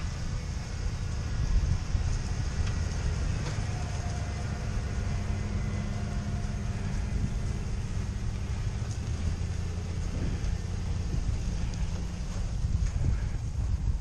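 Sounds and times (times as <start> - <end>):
faint steady hum: 0.0 - 14.0
truck engine low rumble: 0.0 - 14.0.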